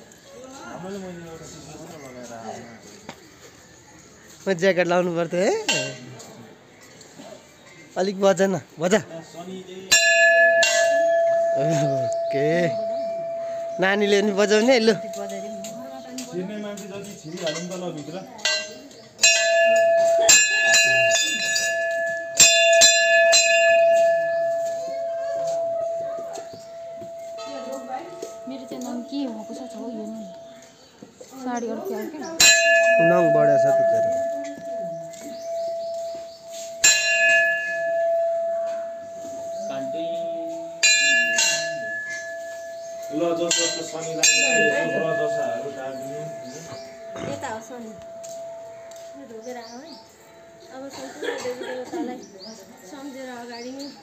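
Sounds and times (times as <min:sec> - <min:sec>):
temple bell ringing: 0:09.9 - 0:30.7, 0:31.8 - 0:52.2.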